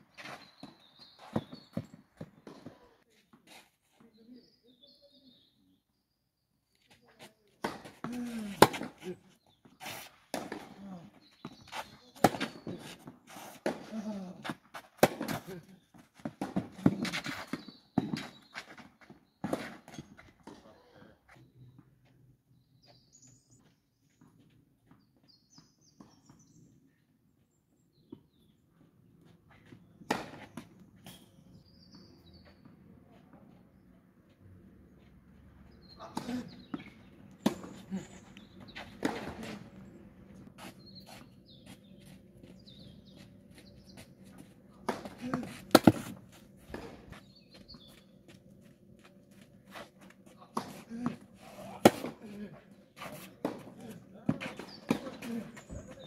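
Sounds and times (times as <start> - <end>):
birds chirping: 0.0 - 3.0, 4.0 - 13.1, 16.6 - 56.0
ball bouncing on clay court: 0.5 - 2.9
racket hitting tennis ball: 7.6 - 9.0, 44.8 - 47.1, 50.5 - 52.3.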